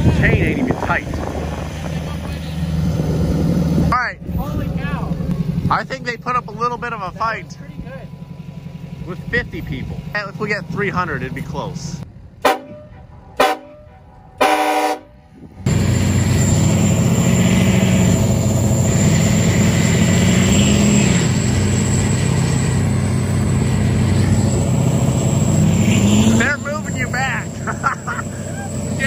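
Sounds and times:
truck engines revving hard: 0.0s - 29.0s
vehicle horn honking: 12.4s - 15.2s.

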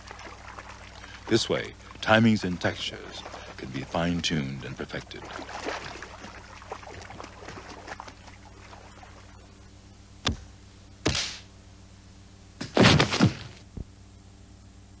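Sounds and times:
water splashes: 0.0s - 9.6s
sharp thud: 10.2s - 11.5s, 12.6s - 13.6s.

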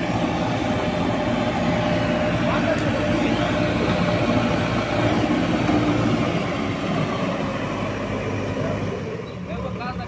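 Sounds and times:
diesel engine running under load: 0.0s - 10.0s.

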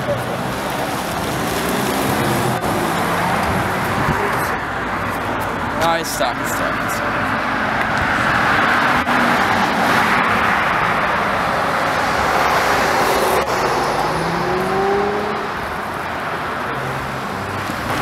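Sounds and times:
car accelerating away: 8.0s - 15.8s
car driving past: 12.1s - 15.6s.

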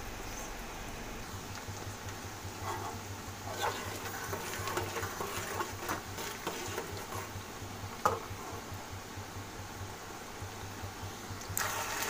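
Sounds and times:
ladle stirring with crackles: 1.3s - 9.2s, 11.3s - 12.0s
onions sizzling in hot oil: 2.4s - 8.8s, 11.5s - 12.0s.

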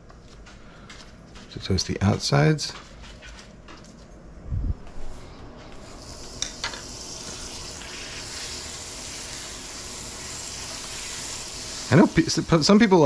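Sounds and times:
butter sizzling on griddle: 5.8s - 13.0s.

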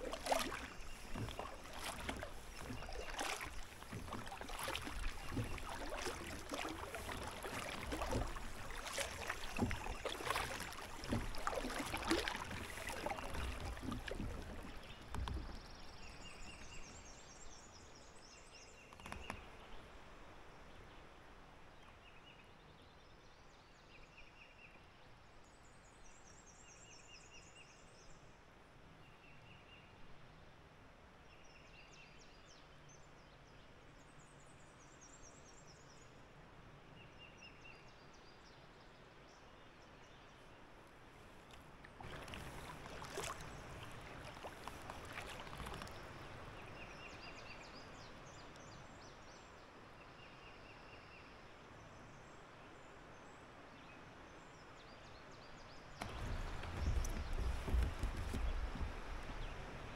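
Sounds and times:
water splashing and dripping: 0.0s - 15.8s, 41.4s - 46.5s, 56.0s - 59.9s
songbirds chirping: 0.0s - 23.8s, 37.0s - 59.9s.

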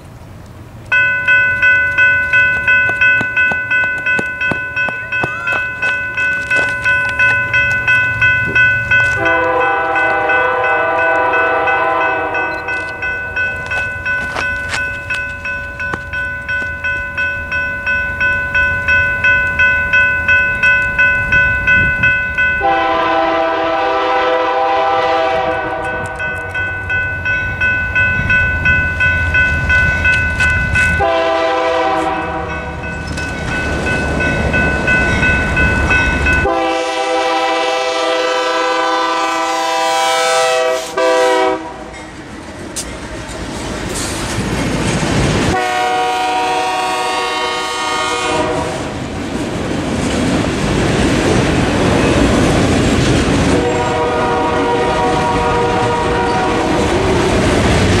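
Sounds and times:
train wheels rumbling on rails: 0.0s - 58.0s
crossing bell ringing: 0.9s - 43.4s, 44.5s - 48.6s, 51.2s - 57.0s
train horn blasts: 9.1s - 13.0s, 22.6s - 26.4s, 30.9s - 32.8s, 36.4s - 42.0s, 45.5s - 48.9s, 53.5s - 56.9s.

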